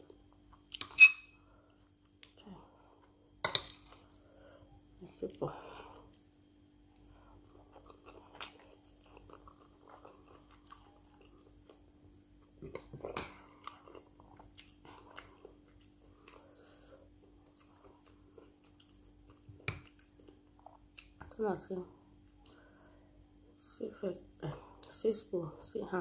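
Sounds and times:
faint steady hum: 0:00.0 - 0:26.0
wet chewing and crunching: 0:05.8 - 0:21.4.

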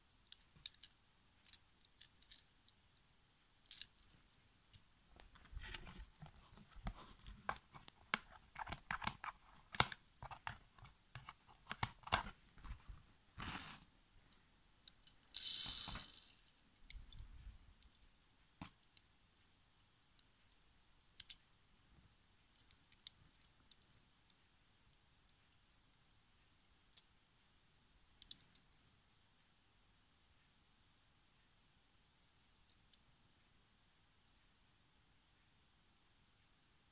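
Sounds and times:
toy cars clicking and tapping: 0:00.3 - 0:04.1, 0:14.9 - 0:17.2, 0:28.2 - 0:28.5.

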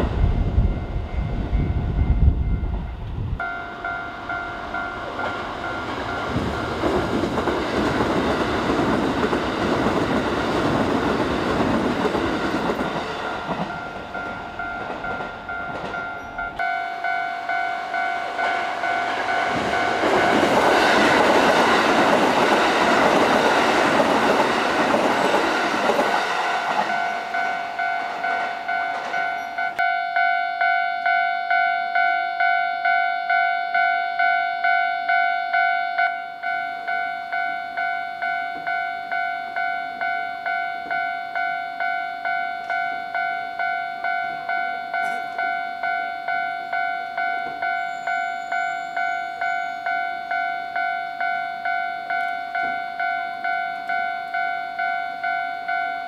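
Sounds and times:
electric train rumbling past: 0:00.0 - 0:56.0
level crossing bell dinging: 0:03.4 - 0:06.9, 0:13.0 - 0:21.5, 0:26.9 - 0:56.0.

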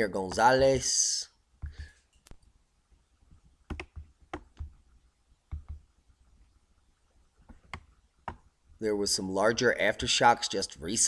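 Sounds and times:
computer mouse clicking: 0:03.7 - 0:04.8, 0:05.5 - 0:05.9, 0:07.4 - 0:08.5.

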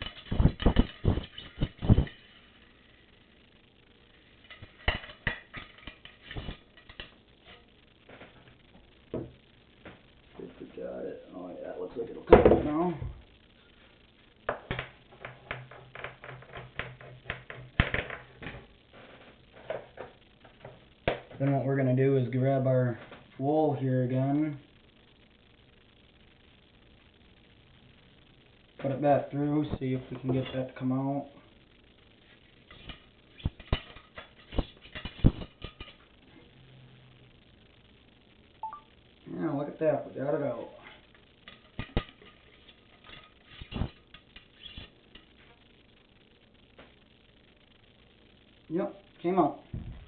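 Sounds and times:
wire brush scraping in gun barrel: 0:41.7 - 0:45.0.

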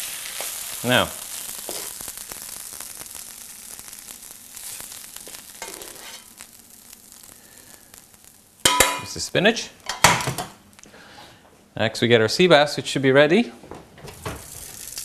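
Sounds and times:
spinach sizzling in a frying pan: 0:00.0 - 0:10.8, 0:14.2 - 0:15.0.

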